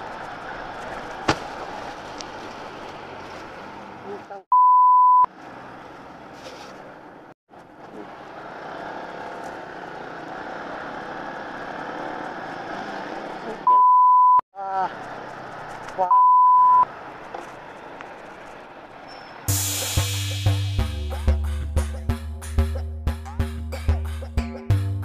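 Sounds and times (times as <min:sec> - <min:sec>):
motorcycle road noise: 0:00.0 - 0:04.4, 0:05.3 - 0:13.7, 0:14.6 - 0:16.1, 0:16.7 - 0:19.6
censor bleep: 0:04.5 - 0:05.3, 0:13.7 - 0:14.4, 0:16.1 - 0:16.8.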